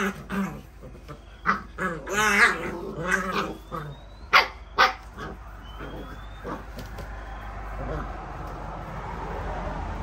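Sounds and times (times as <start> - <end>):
puppies yelping and whining: 0.0 - 8.2.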